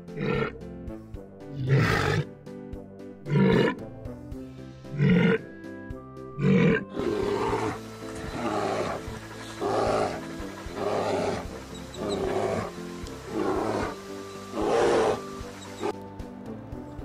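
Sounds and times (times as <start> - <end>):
animal rasping growls: 0.0 - 0.5, 1.5 - 2.3, 3.3 - 3.8, 4.9 - 5.4, 6.4 - 16.0
background music: 0.0 - 17.0
animal deep bellows: 6.3 - 16.0.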